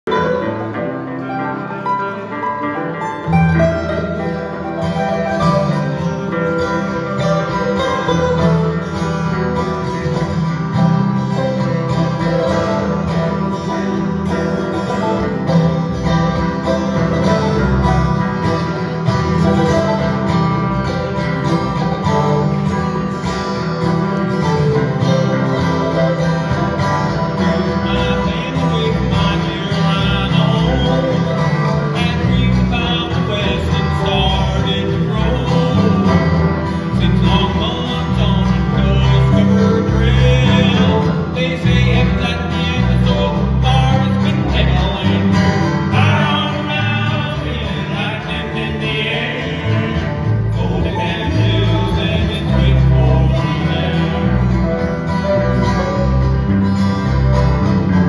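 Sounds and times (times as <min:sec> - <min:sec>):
mandolin: 0:00.0 - 0:58.0
strummed acoustic guitars: 0:00.0 - 0:58.0
electric bass: 0:02.8 - 0:58.0.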